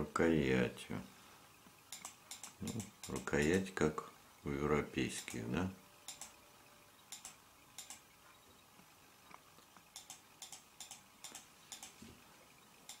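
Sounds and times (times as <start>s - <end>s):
handling ticks and clicks: 1.6s - 3.6s, 6.0s - 6.4s, 7.1s - 8.0s, 8.7s - 12.0s.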